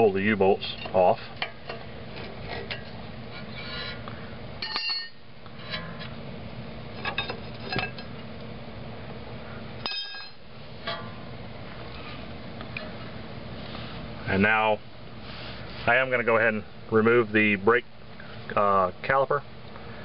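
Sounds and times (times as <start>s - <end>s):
metal clinks and scrapes: 0.6s - 4.0s, 4.6s - 6.1s, 7.0s - 8.1s, 9.8s - 11.2s
ringing metal clinks: 4.6s - 5.2s, 9.8s - 11.1s.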